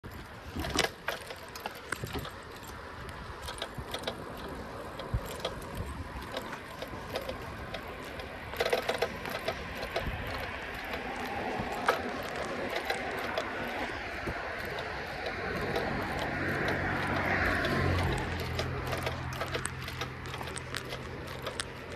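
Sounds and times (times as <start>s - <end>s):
tyre and wind rush: 0.0s - 21.8s
bicycle rattling and clicking: 0.0s - 21.9s.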